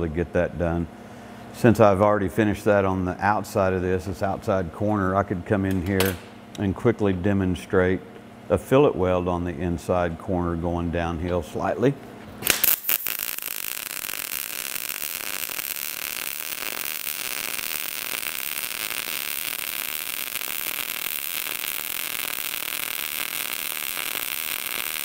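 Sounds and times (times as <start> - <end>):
welding arc buzzing: 12.3 - 25.0.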